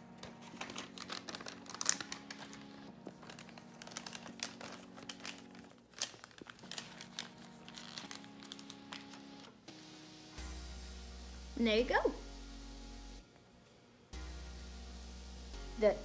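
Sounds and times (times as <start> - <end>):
plastic bag crinkling: 0.2 - 9.3.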